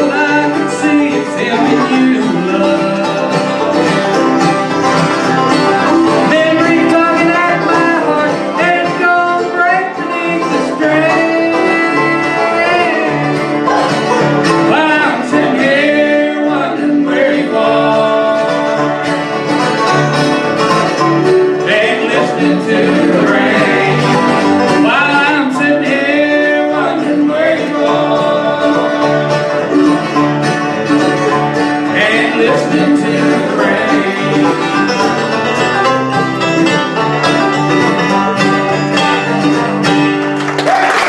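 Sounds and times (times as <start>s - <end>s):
bluegrass band playing: 0.0s - 41.0s.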